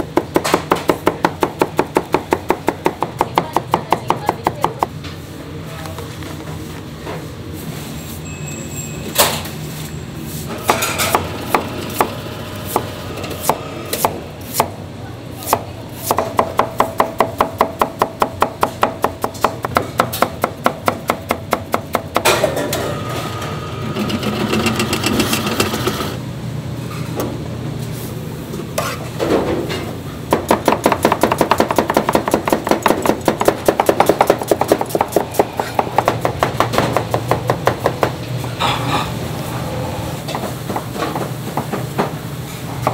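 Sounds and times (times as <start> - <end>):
knife chopping on plastic board: 30.3 - 38.1.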